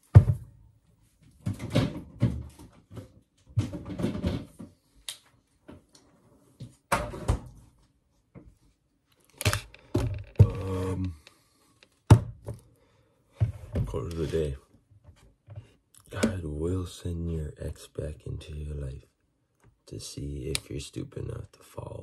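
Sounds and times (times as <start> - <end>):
kitchen items clattering and bumping: 1.4 - 4.7, 9.8 - 11.1.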